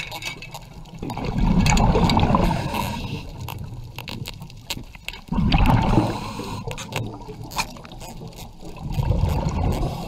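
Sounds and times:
underwater bubbling rumble: 0:00.8 - 0:04.0, 0:05.2 - 0:10.0.

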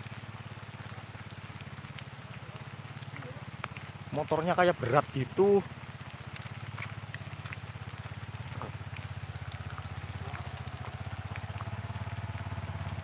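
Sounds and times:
faint ticks: 0:00.0 - 0:13.0
motorcycle engine running: 0:00.0 - 0:13.0
rider speaking: 0:02.4 - 0:05.7.

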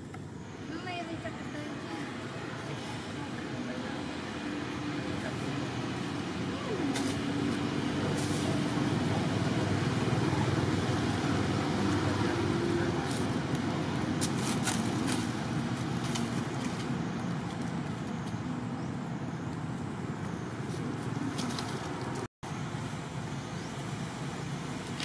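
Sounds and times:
outdoor background rumble and hiss: 0:00.0 - 0:25.0.

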